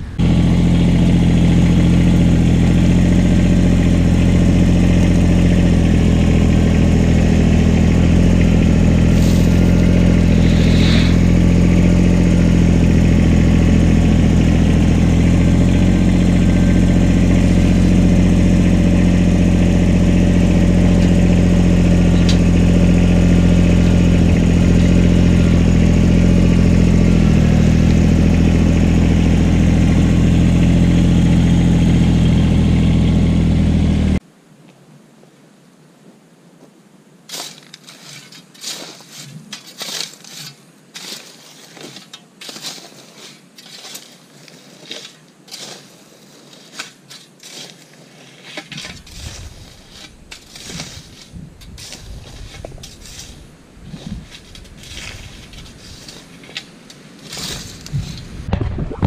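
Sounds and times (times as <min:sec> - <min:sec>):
tractor diesel engine running: 0:00.0 - 0:34.2, 0:48.8 - 0:59.0.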